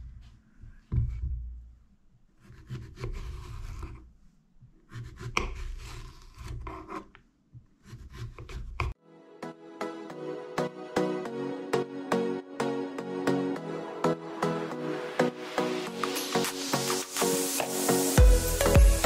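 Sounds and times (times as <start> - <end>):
knife slicing zucchini: 2.4 - 4.0, 4.9 - 7.1.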